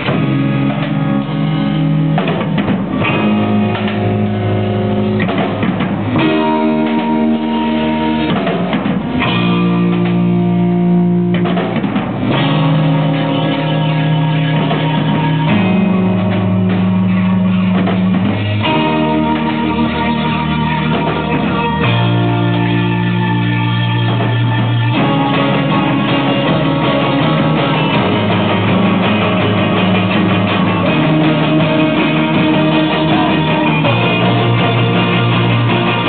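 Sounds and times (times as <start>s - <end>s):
bass: 0.0s - 36.0s
drum kit: 0.0s - 36.0s
strummed guitars: 0.0s - 36.0s.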